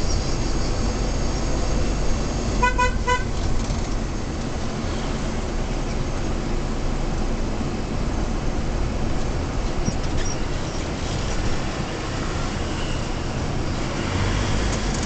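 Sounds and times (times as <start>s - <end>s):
engine and road rumble in cabin: 0.0s - 15.0s
car horn toots: 2.6s - 3.4s.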